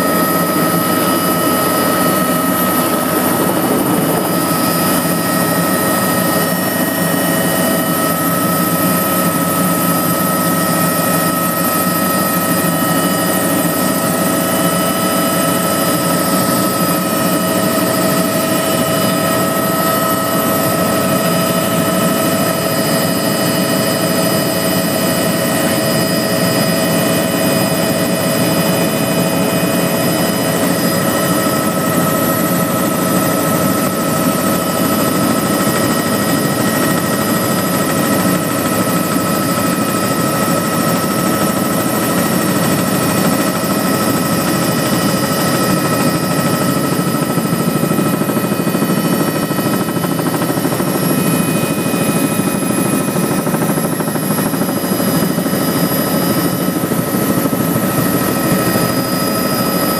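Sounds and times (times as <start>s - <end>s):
helicopter turbine and rotor: 0.0s - 59.9s.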